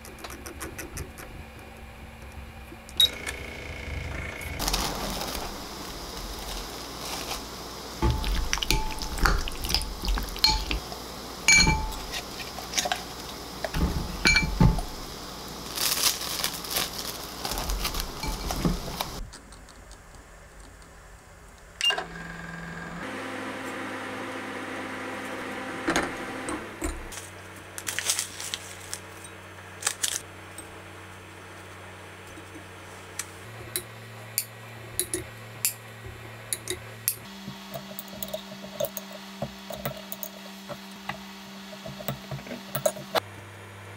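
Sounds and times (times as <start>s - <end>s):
microwave oven humming: 0.9s - 19.2s, 21.8s - 27.7s, 33.4s - 43.9s
plastic wrap rustling: 4.6s - 10.8s, 11.9s - 19.2s, 27.1s - 30.3s
spoon clinking on glass: 8.1s - 10.8s, 11.5s - 12.0s, 14.2s - 14.7s.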